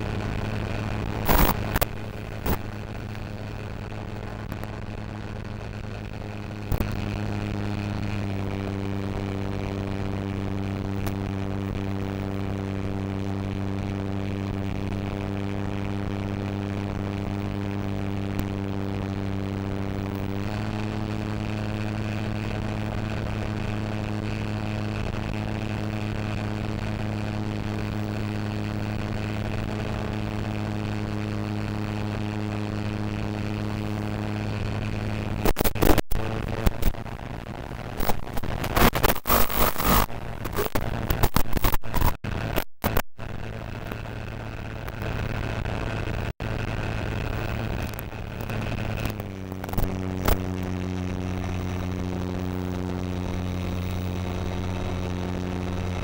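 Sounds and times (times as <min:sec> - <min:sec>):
electric motor and propeller humming: 0:43.3 - 0:56.0.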